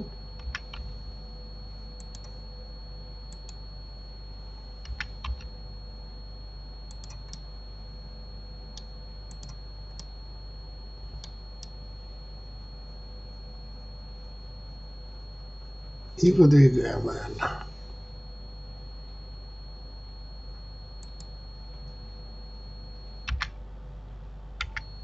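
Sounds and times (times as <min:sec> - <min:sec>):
faint high whine: 0:00.0 - 0:25.0
low electrical hum: 0:00.0 - 0:25.0
keyboard and mouse clicking: 0:00.4 - 0:00.9, 0:02.0 - 0:02.4, 0:04.8 - 0:05.5, 0:06.9 - 0:07.4, 0:08.7 - 0:10.1, 0:23.3 - 0:23.5, 0:24.6 - 0:24.9.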